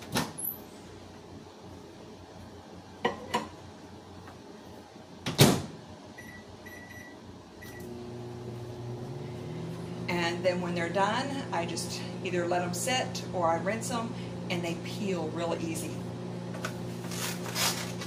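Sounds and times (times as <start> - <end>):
keypad beeps: 6.2 - 7.8.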